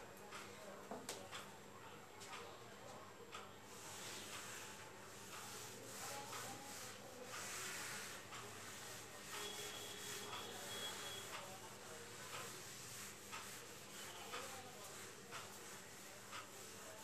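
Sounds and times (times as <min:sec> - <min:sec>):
eraser wiping whiteboard: 0:03.7 - 0:17.0.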